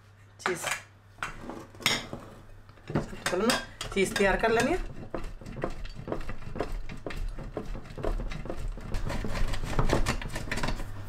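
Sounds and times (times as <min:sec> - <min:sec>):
cheese grating on metal grater: 0:04.0 - 0:11.0.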